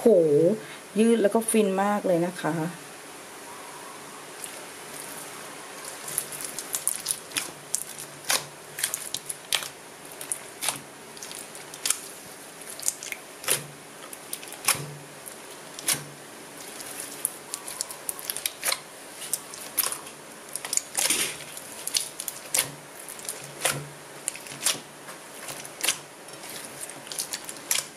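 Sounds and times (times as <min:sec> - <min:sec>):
slime squeezed with wet pops: 0:05.8 - 0:24.8.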